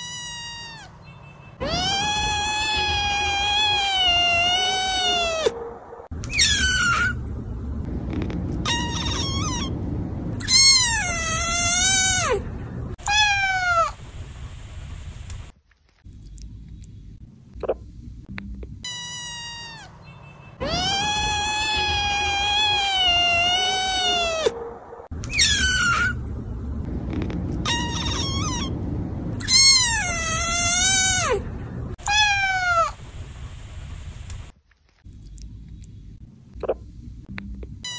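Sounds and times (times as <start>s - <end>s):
kittens meowing: 0.0s - 1.0s, 1.6s - 5.6s, 8.6s - 9.7s, 10.4s - 12.4s, 13.0s - 14.0s, 20.6s - 24.6s, 27.6s - 28.7s, 32.0s - 33.0s.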